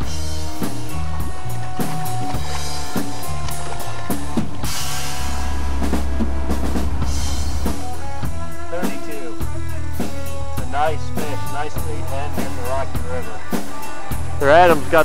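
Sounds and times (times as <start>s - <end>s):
drum kit music: 0.0s - 15.0s
cymbal crash: 4.7s - 8.4s
long low bass note: 4.8s - 8.4s.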